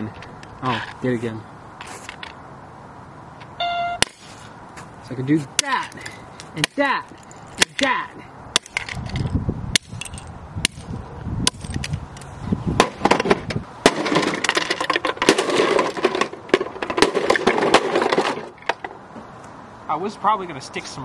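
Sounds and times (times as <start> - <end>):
plastic toys smashed on concrete: 12.8 - 18.8
plastic pieces clattering: 13.9 - 18.7.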